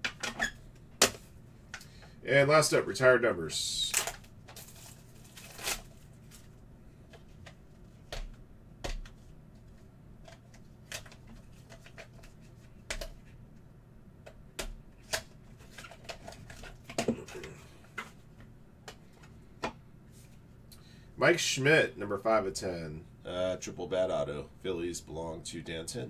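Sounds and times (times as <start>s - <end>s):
plastic wrap crinkling: 3.9s - 6.6s.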